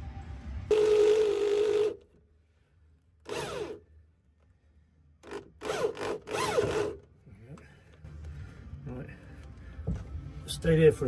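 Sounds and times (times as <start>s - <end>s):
electric drill boring sheet metal: 0.7s - 2.0s, 3.3s - 3.8s.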